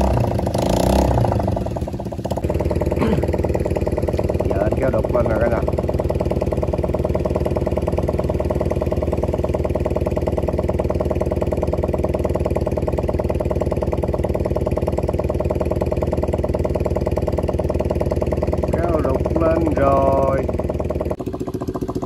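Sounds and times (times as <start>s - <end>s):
small boat engine running: 0.0s - 22.0s.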